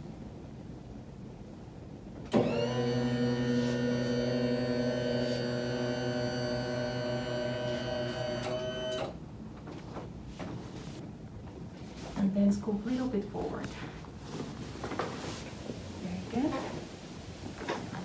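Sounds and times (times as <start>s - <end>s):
electric bed motor humming: 2.3s - 9.2s.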